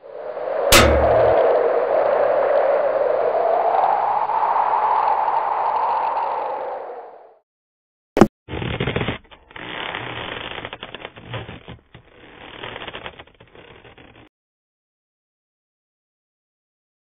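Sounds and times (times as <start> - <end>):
sharp click: 0.7 - 1.4
irregular crackling and clicking: 8.5 - 14.3.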